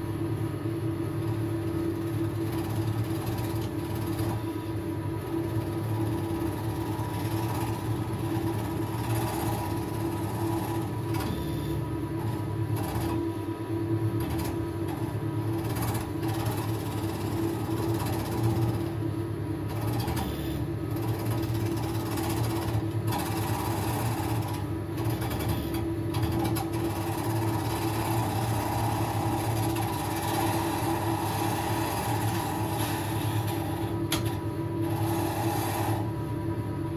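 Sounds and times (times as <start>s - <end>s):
wood lathe motor humming: 5.9s - 11.4s, 26.2s - 36.2s
turning tool scraping wood: 29.8s - 33.9s, 34.9s - 36.0s.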